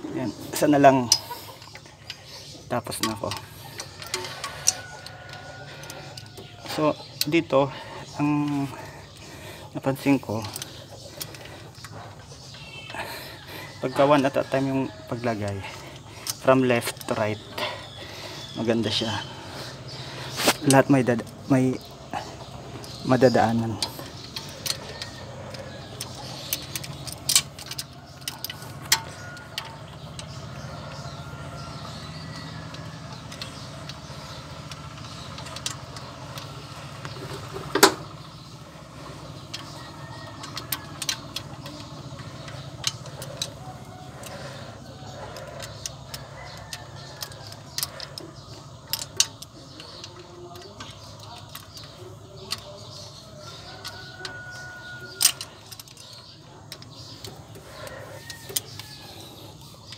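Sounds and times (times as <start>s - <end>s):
steady low hum: 0.0s - 59.9s
metallic clicks and taps of tools: 2.9s - 7.4s, 22.8s - 38.1s, 39.4s - 44.4s, 45.0s - 59.9s.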